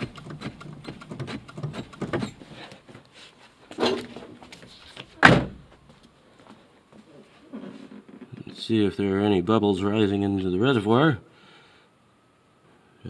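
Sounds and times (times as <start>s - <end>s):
clutch pedal clicking and thudding: 0.0s - 2.4s.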